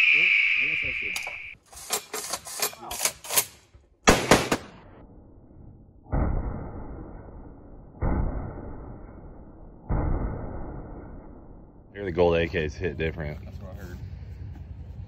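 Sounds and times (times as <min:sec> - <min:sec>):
heavy rifle shots with echo: 0:04.0 - 0:05.0.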